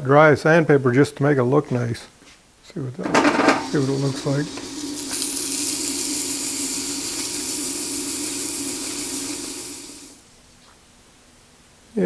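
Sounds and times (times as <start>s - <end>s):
lathe humming: 3.1s - 10.2s
sandpaper hissing on metal pulley: 3.7s - 10.2s.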